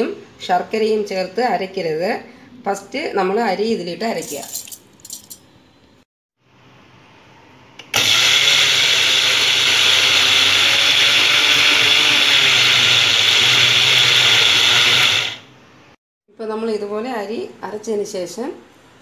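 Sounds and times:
mixer grinder grinding rice: 0:07.8 - 0:15.5.

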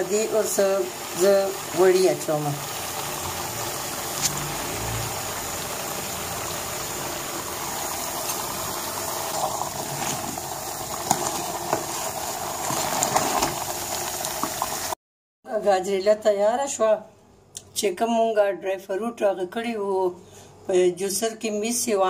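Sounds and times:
food sizzling in ghee: 0:00.0 - 0:15.0.

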